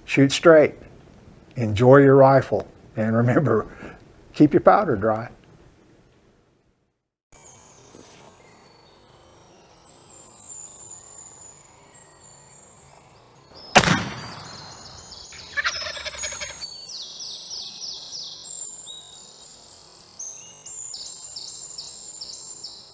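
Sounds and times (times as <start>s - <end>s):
high bird chirps: 13.6s - 18.4s
rifle shot: 13.8s - 15.1s
rattling bird call: 15.4s - 16.6s.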